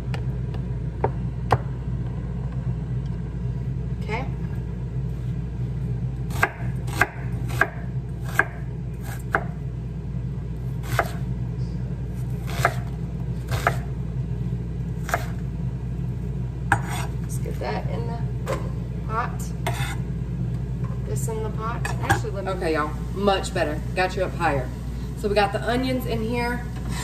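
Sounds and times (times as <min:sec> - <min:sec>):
steady low hum: 0:00.0 - 0:27.0
knife chopping on wooden board: 0:06.3 - 0:09.6, 0:10.8 - 0:11.2, 0:12.4 - 0:12.9, 0:13.5 - 0:13.9, 0:15.0 - 0:15.4, 0:16.7 - 0:17.1
knife scraping board: 0:16.7 - 0:17.2, 0:19.6 - 0:20.0.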